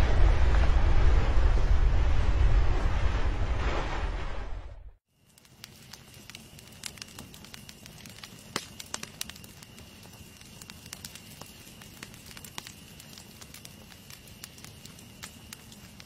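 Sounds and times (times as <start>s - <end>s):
rush of flames: 0.0s - 16.0s
fire crackling and popping: 5.1s - 16.0s.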